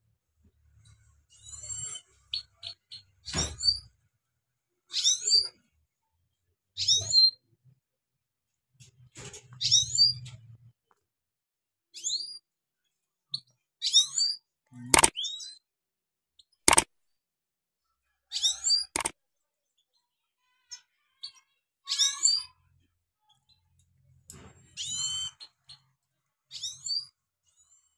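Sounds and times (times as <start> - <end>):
sharp clicks: 14.9 - 15.1, 16.7 - 16.9.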